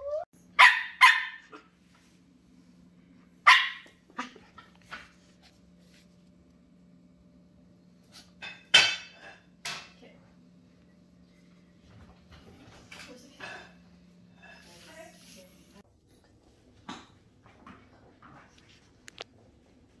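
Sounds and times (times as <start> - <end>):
puppy yipping: 0.0 - 1.6
puppy barking: 0.0 - 1.7, 3.4 - 4.4.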